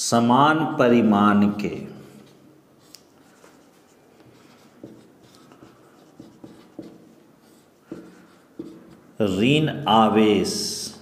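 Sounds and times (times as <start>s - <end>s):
marker writing on whiteboard: 2.2s - 9.4s.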